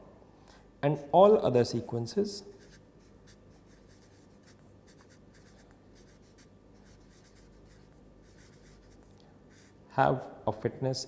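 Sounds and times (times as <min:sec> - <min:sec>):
marker pen scratching on paper: 0:02.5 - 0:09.8.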